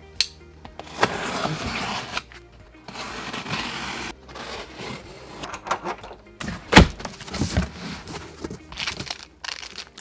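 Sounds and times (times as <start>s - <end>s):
blade scraping along packing tape: 0.9s - 2.3s, 2.9s - 5.3s.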